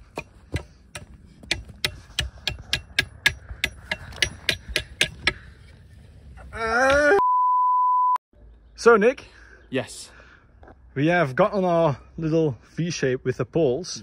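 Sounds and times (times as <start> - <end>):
loud steady test tone beep: 7.2 - 8.2.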